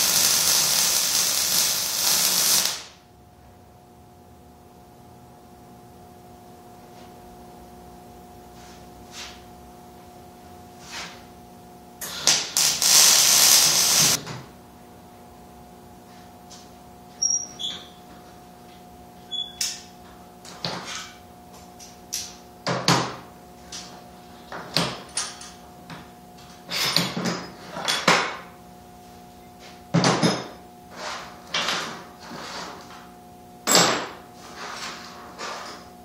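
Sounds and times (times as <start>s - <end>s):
welder bursts: 0.0s - 3.0s, 12.0s - 14.2s
steady welder hum: 0.0s - 27.6s.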